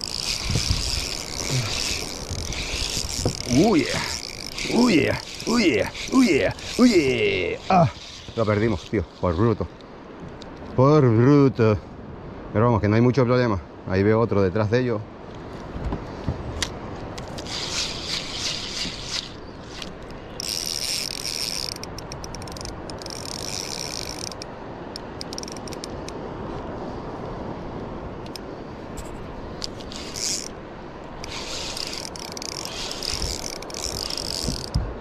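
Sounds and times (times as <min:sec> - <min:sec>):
spinning reel ratcheting whirr: 0:00.0 - 0:09.0, 0:17.3 - 0:24.5, 0:25.2 - 0:25.9, 0:29.7 - 0:30.5, 0:31.2 - 0:34.8.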